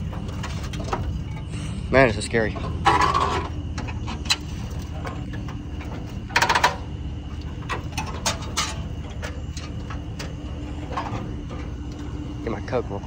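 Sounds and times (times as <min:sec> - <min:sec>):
metal and plastic clanking: 0:02.4 - 0:06.9, 0:07.6 - 0:12.1.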